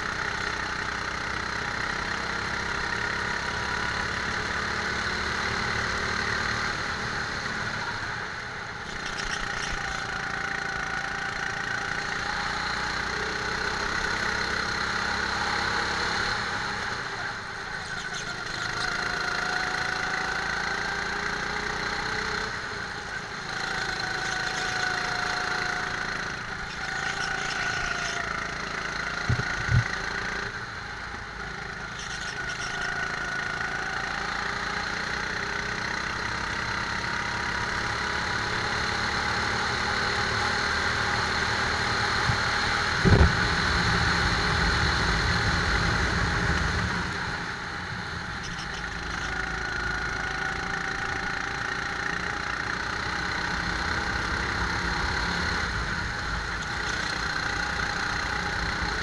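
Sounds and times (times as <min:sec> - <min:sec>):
go-kart engine running: 0:00.0 - 0:59.0.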